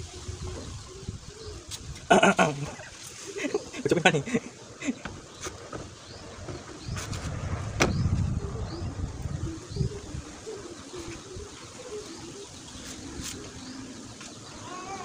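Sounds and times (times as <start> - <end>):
bird calls: 0.0 - 15.0
low rumble: 6.2 - 10.4.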